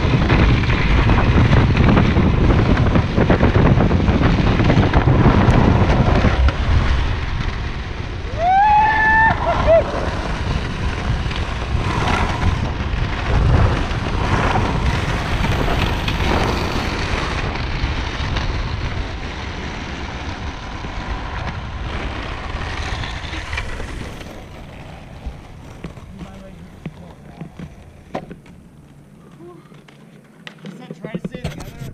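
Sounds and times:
wind rushing over microphone: 0.0 - 29.1
board wheels rolling on asphalt: 0.0 - 31.9.

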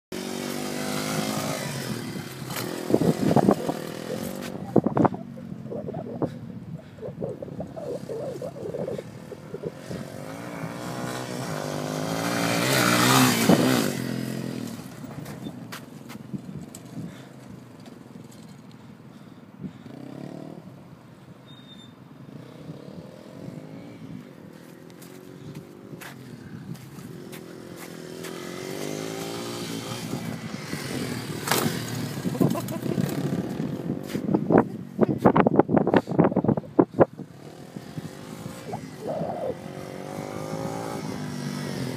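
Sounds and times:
dirt bike engine passing: 0.2 - 15.7, 22.2 - 34.7, 37.0 - 41.9.

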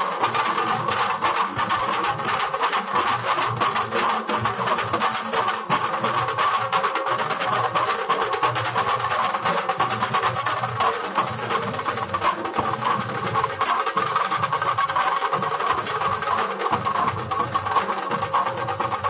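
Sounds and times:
barrel drums beaten with sticks: 0.0 - 19.0.

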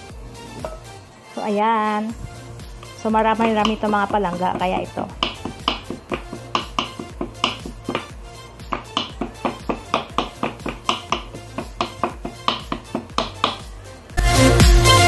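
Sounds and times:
background music: 0.0 - 15.0
knife tapping on cutting board: 3.4 - 8.1, 8.7 - 13.7.

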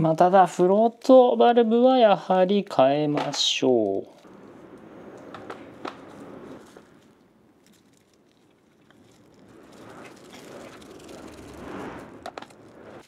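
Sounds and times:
soft rushing noise: 3.6 - 13.0.

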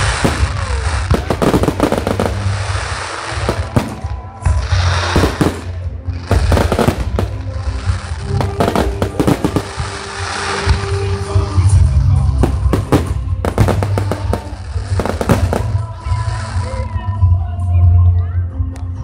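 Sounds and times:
fireworks bangs and crackles: 0.0 - 17.1
music playing: 0.0 - 19.0.

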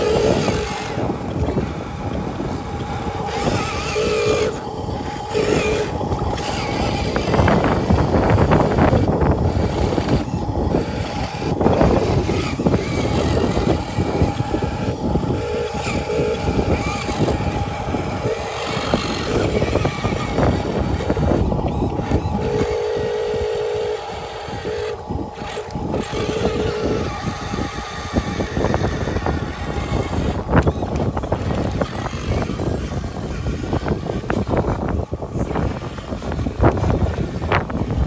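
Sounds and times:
toy truck motor whining: 0.0 - 38.0
wheels rumbling: 0.0 - 38.0.

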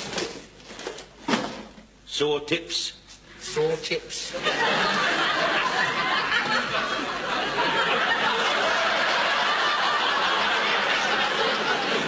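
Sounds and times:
studio audience laughing: 4.3 - 12.0.

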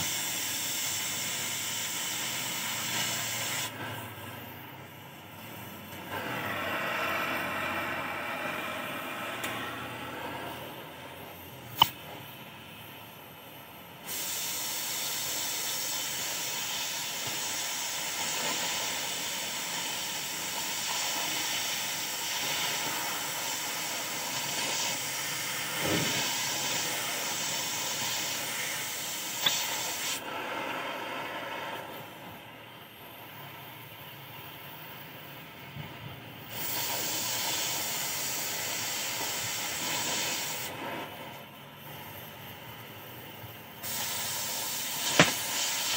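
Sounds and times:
cutting torch hissing: 0.0 - 4.6, 13.8 - 35.6, 36.4 - 45.9.

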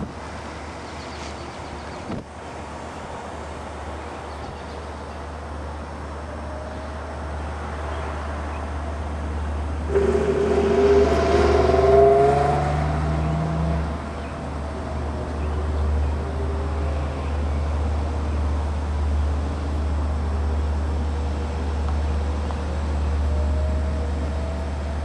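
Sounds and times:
steady low rumble: 9.6 - 16.2
engine revving: 9.9 - 14.3.

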